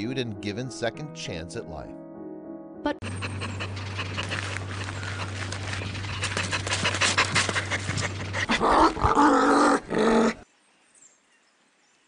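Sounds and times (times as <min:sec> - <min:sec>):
dog panting: 0:03.0 - 0:08.7
steady low hum: 0:03.0 - 0:09.0.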